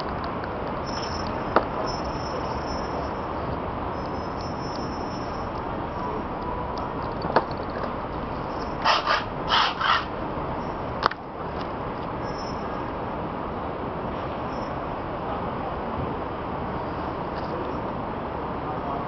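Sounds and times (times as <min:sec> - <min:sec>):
city street noise: 0:00.0 - 0:19.0
short harsh bursts: 0:08.7 - 0:10.2.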